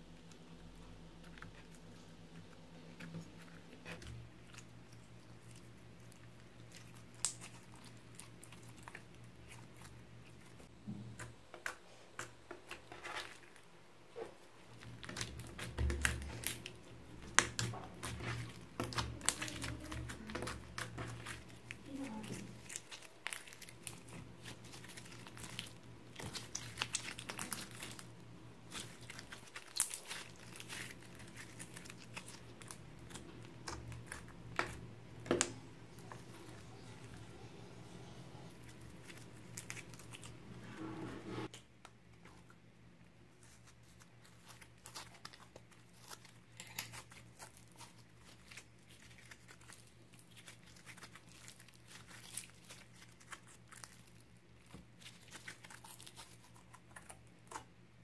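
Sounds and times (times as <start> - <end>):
slime squelching and popping: 3.9 - 13.4, 14.2 - 37.0.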